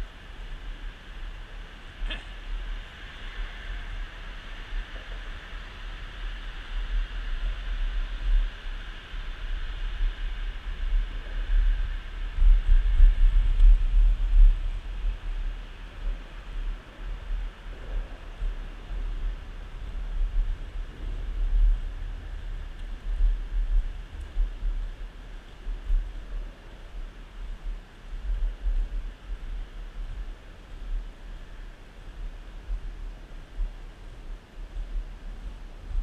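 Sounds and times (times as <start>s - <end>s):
skateboard wheels rolling on asphalt: 0.0s - 36.0s
wind buffeting microphone: 0.0s - 36.0s.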